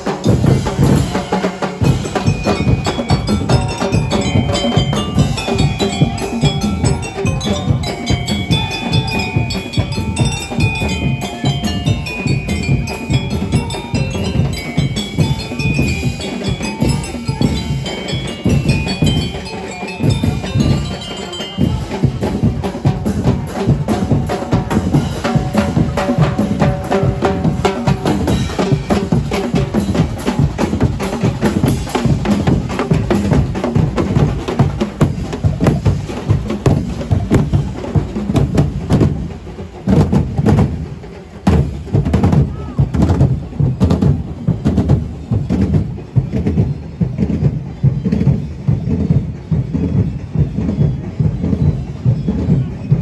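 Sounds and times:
bell-like melody: 0.0 - 42.0
drum and percussion band: 0.0 - 53.0.

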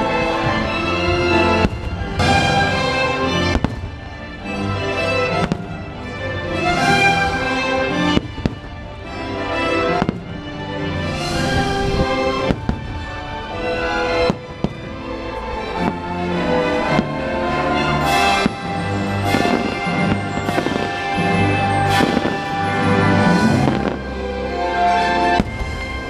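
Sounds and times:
loud music: 0.0 - 26.0
fireworks bursting with sharp bangs: 0.1 - 24.3, 24.9 - 26.0.

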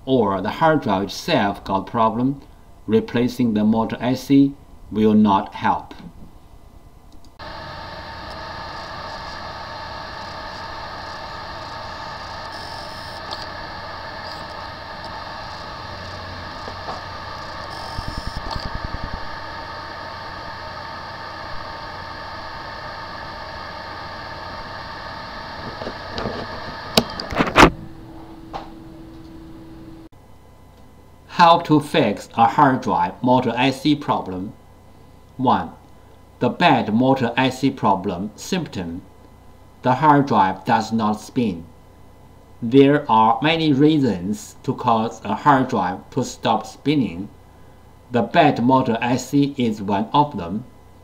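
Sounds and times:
hard drive hiss and hum: 0.0 - 51.0
hard drive sharp clicks: 7.1 - 22.3.

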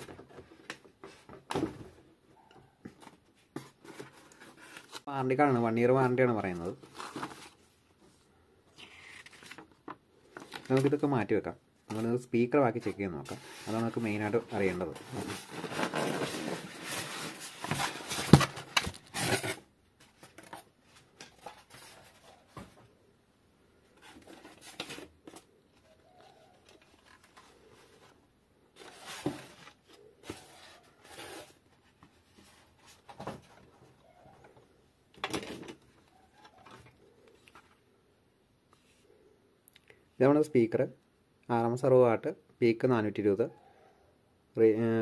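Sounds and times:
packaging rustling: 13.3 - 22.5.

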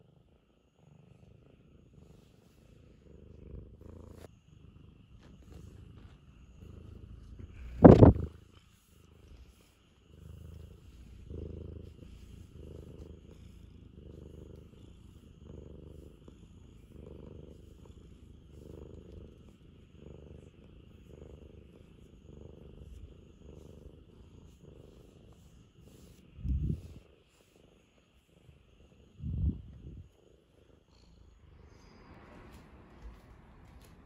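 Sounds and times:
cat purring: 0.0 - 34.0
loud bump: 7.7 - 8.2.

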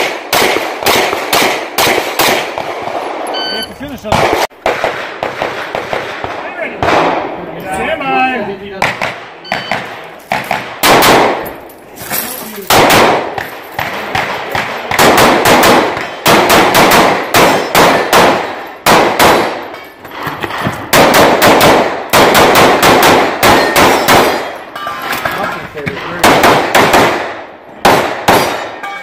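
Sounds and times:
handgun shots: 8.8 - 11.5, 12.6 - 19.6, 26.2 - 28.8.

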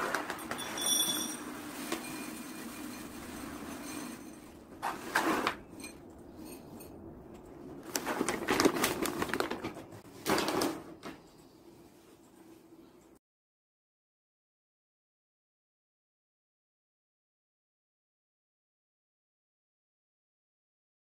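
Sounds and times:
hand scraping litter pellets: 0.0 - 5.7
litter bag rustling: 7.8 - 10.8.

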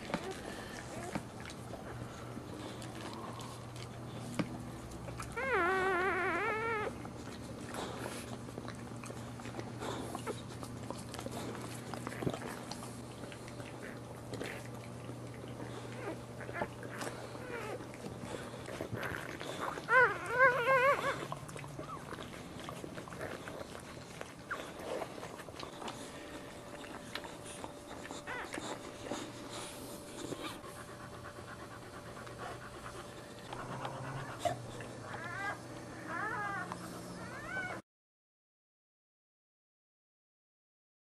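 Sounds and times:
dog panting: 0.0 - 37.8
puppy crying: 5.1 - 7.1, 15.6 - 18.0, 18.7 - 23.9, 26.4 - 29.4, 33.4 - 37.8.

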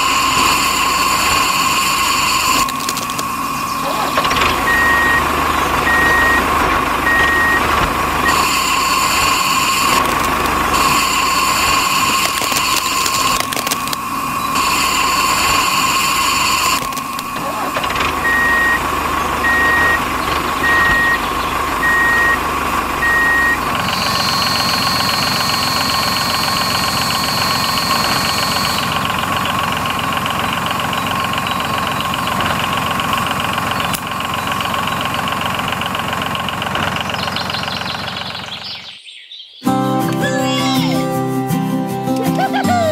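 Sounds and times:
higher steady whine: 0.0 - 37.5
small motor whining: 0.0 - 38.8
short beeps: 3.8 - 10.1, 18.2 - 18.8, 19.4 - 29.0.

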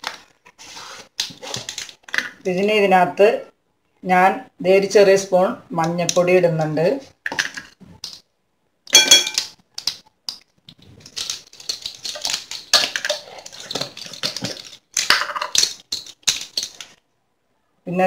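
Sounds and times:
spoon clinking: 8.9 - 9.5
spice containers clicking and rattling: 8.9 - 17.0.

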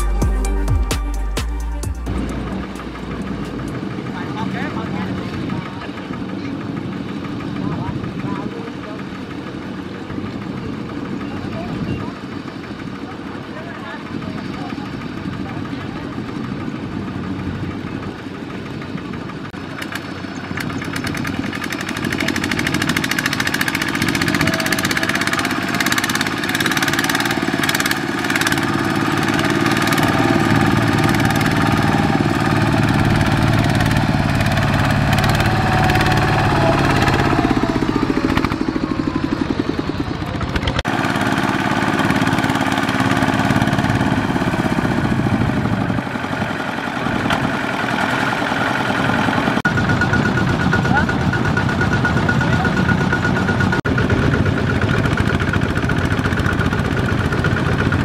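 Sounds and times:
diesel tiller engine running: 0.0 - 58.0.

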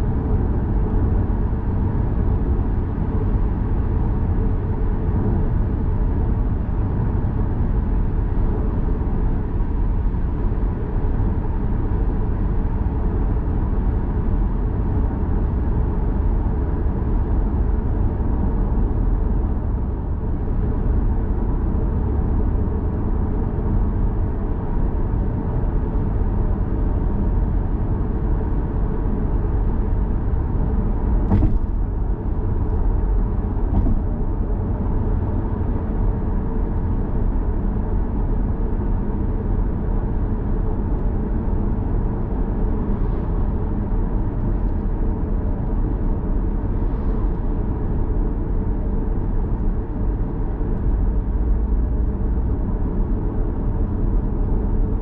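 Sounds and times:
road and tyre noise: 0.0 - 55.0.

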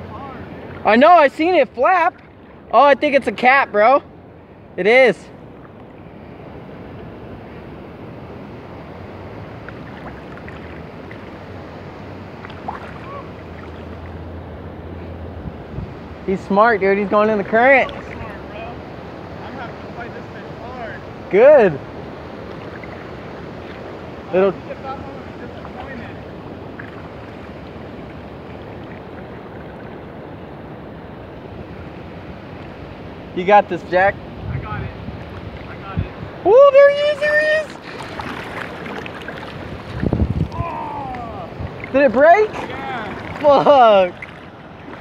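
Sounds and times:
water rushing over spillway: 8.7 - 15.2, 16.2 - 31.0, 31.6 - 45.0
wind on microphone: 15.2 - 16.6, 34.1 - 45.0.

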